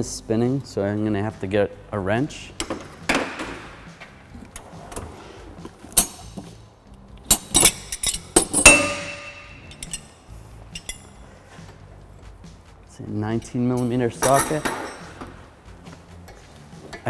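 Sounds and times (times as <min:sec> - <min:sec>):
metal hand tools clanking: 0:07.3 - 0:11.2, 0:13.4 - 0:15.4.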